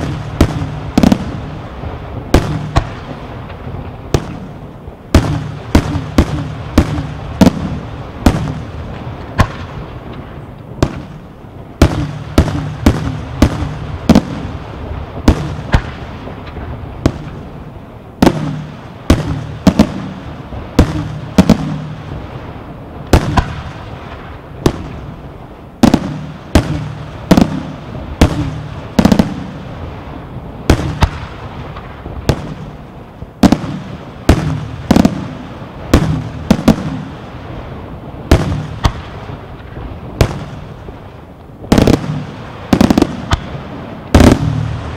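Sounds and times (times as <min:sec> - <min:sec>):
firework shells bursting: 0:23.1 - 0:23.8.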